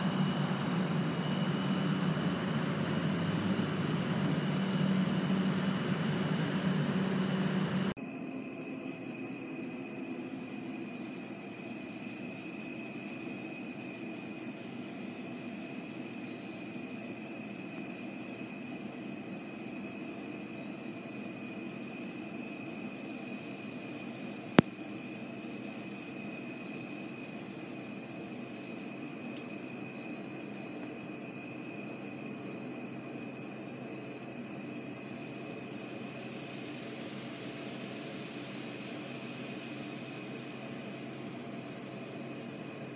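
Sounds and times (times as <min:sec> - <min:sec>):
crickets chirping: 0:08.0 - 0:42.9
high-pitched insect trill: 0:08.0 - 0:42.9.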